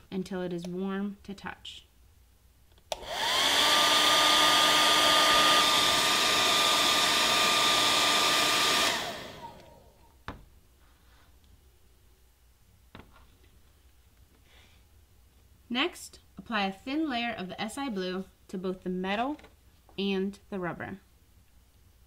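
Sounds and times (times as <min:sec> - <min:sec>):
hair dryer switch click: 0:02.9 - 0:03.6
hair dryer motor whine: 0:02.9 - 0:10.0.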